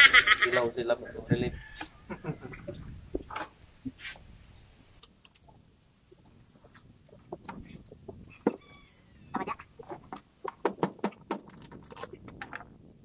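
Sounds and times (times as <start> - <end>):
sea urchin shells cracking: 5.0 - 5.6, 9.8 - 12.8.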